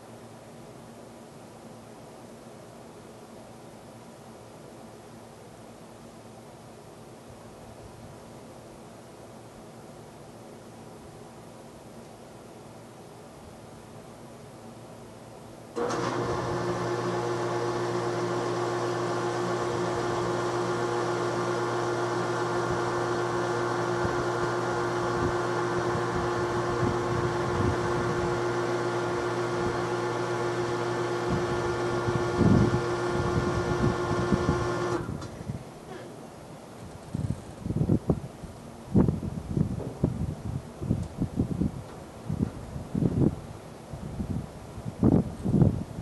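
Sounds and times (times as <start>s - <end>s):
mechanical hum: 0.0s - 46.0s.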